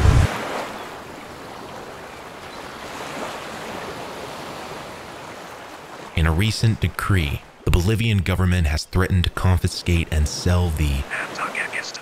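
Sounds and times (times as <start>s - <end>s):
loud low rumble: 0.0s - 0.3s
soft rushing noise: 0.0s - 0.3s.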